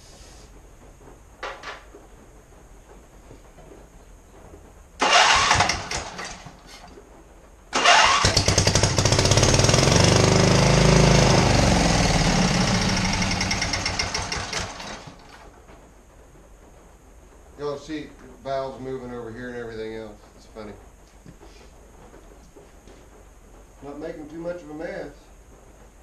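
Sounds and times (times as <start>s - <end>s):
engine cranking: 5.0s - 6.7s, 7.7s - 15.4s.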